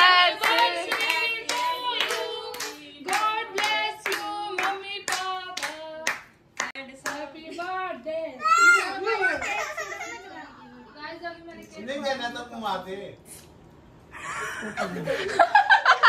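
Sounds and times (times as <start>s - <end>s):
voices singing along: 0.0s - 6.1s
group clapping in rhythm: 0.0s - 7.3s.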